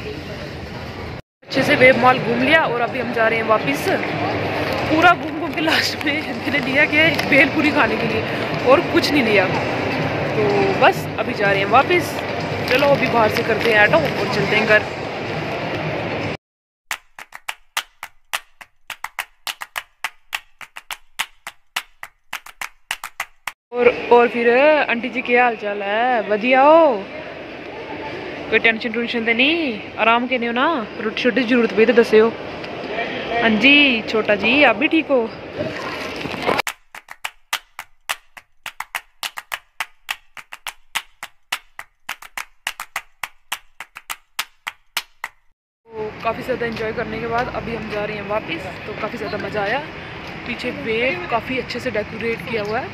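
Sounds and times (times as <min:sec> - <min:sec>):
sharp percussive clicks: 0:16.9 - 0:23.6, 0:36.7 - 0:45.5.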